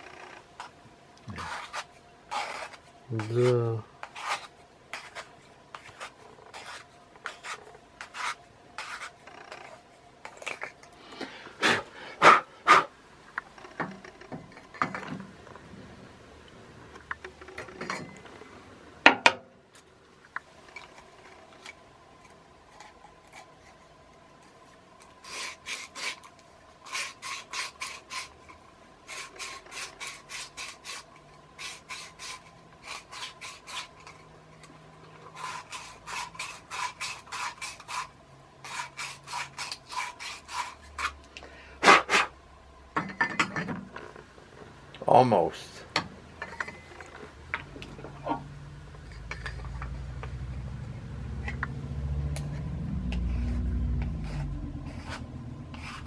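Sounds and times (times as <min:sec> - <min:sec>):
hand tool rasping strokes: 0:01.3 - 0:10.8, 0:25.2 - 0:34.3, 0:35.3 - 0:41.2, 0:52.5 - 0:56.0.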